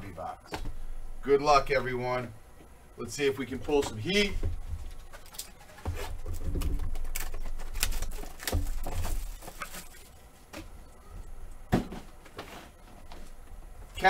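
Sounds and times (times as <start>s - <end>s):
dull thumps: 3.7s - 13.7s
foil packs crinkling: 4.8s - 10.3s
cardboard box tearing: 6.1s - 9.7s.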